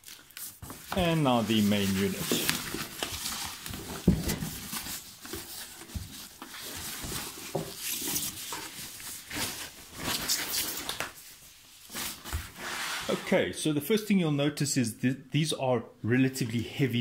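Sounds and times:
plastic bag rustling: 0:00.0 - 0:10.8.

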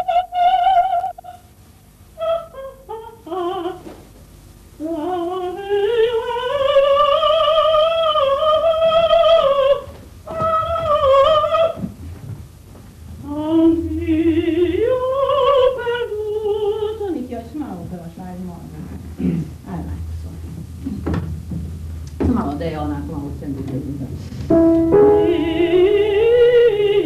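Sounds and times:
woman singing opera: 0:00.0 - 0:01.4, 0:02.2 - 0:03.9, 0:04.8 - 0:11.9, 0:13.2 - 0:17.3, 0:25.0 - 0:27.0.

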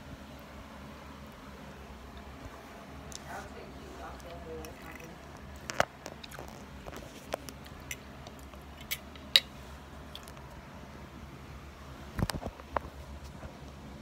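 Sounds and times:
person chewing food: 0:04.1 - 0:10.6.

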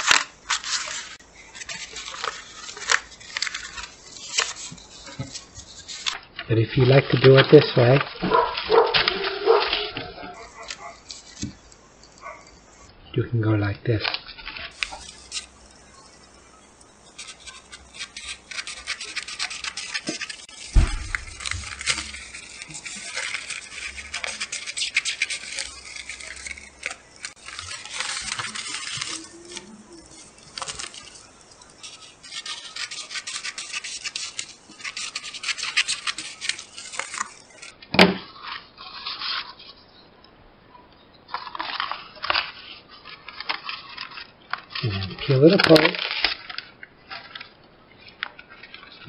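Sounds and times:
plastic film crinkling: 0:00.0 - 0:12.9, 0:13.9 - 0:39.6, 0:41.3 - 0:49.0
scissors snipping: 0:08.3 - 0:12.5, 0:17.2 - 0:37.7
low thump: 0:20.8 - 0:21.4.

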